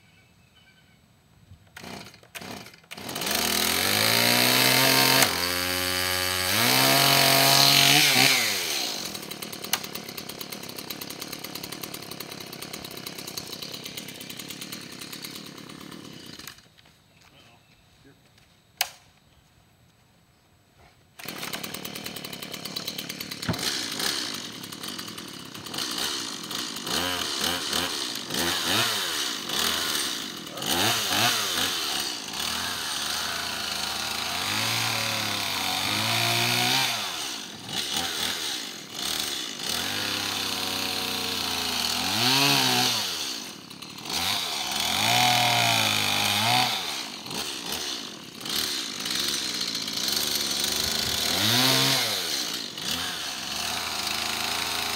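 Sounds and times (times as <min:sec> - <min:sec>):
chainsaw revving and cutting: 0:01.8 - 0:16.7, 0:21.2 - 0:54.9.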